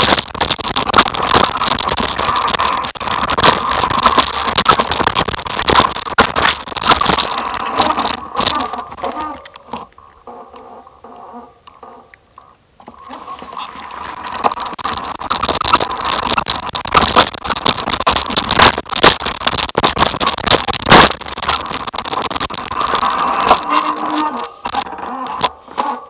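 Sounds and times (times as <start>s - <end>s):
sharp knocks over rocks: 0.0s - 9.2s, 13.9s - 23.6s
rattling and crunching: 0.0s - 12.1s, 12.8s - 26.0s
tyres on loose stones: 0.0s - 26.0s.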